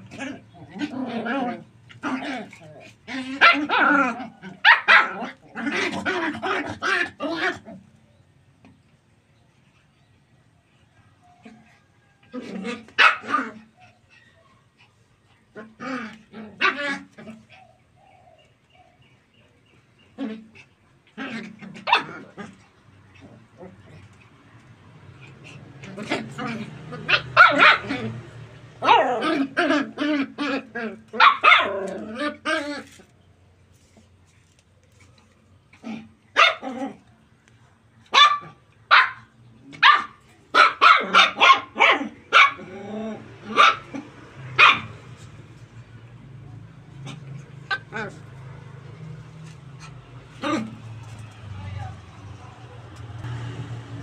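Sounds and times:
puppies yapping: 0:00.0 - 0:07.6, 0:12.3 - 0:19.1, 0:19.8 - 0:33.0, 0:38.1 - 0:45.4, 0:46.9 - 0:51.4.

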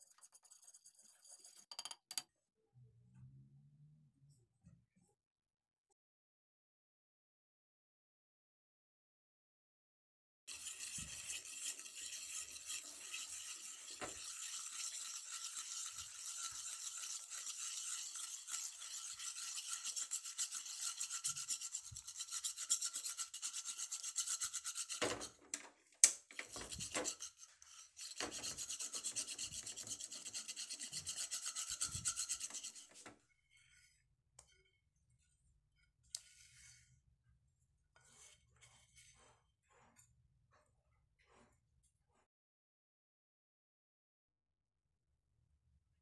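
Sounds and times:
spoon scraping a steel pan: 0:00.0 - 0:02.2, 0:10.5 - 0:25.4, 0:26.3 - 0:34.8, 0:38.0 - 0:40.1.

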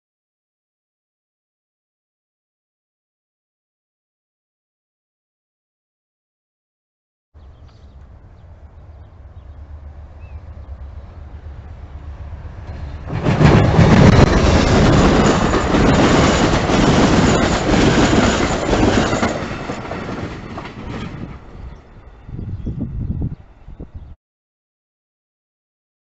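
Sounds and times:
passenger train passing at speed: 0:07.4 - 0:24.1.

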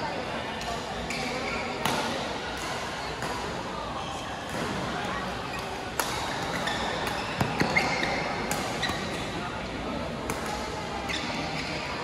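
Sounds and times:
murmur of voices: 0:00.0 - 0:12.0
racket hitting shuttlecock: 0:06.0 - 0:07.8.

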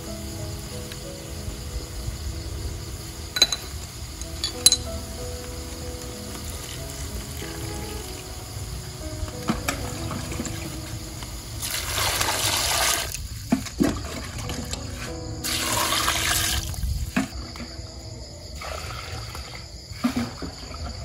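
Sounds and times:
water pouring into metal pot: 0:11.6 - 0:13.2, 0:15.4 - 0:16.9, 0:18.6 - 0:21.0.

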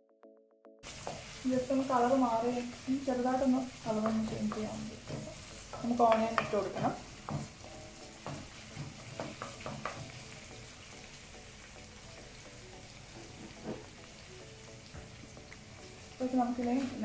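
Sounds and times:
garlic sizzling in oil: 0:00.8 - 0:17.0
spatula tapping and scraping wok: 0:00.9 - 0:02.1, 0:03.4 - 0:10.5.

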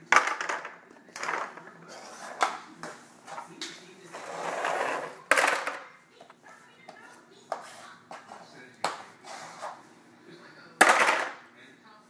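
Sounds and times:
plastic toys clattering on floor: 0:00.0 - 0:01.8, 0:04.1 - 0:05.9, 0:10.8 - 0:11.4.

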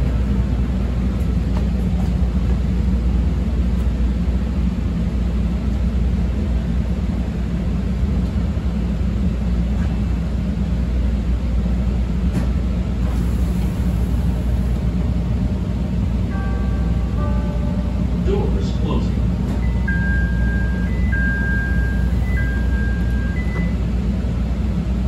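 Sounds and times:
train car hum and rumble: 0:00.0 - 0:25.0
train doors hissing: 0:12.4 - 0:15.1.

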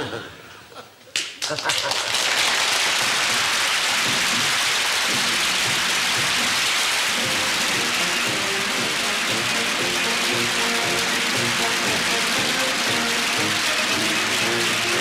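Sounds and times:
audience applauding: 0:01.1 - 0:15.0
faint music: 0:03.0 - 0:15.0.

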